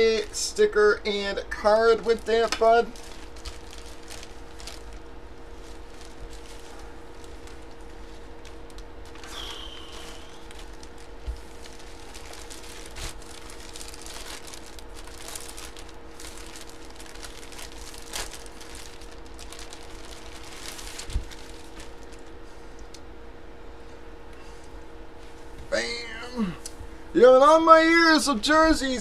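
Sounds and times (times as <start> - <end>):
plastic packaging crinkling: 0.0 - 23.0
faint steady hum: 0.0 - 29.0.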